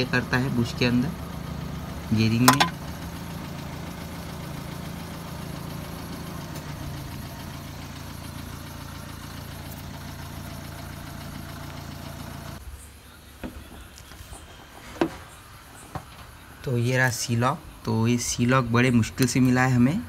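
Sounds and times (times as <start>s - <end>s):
engine idling: 0.0s - 12.7s.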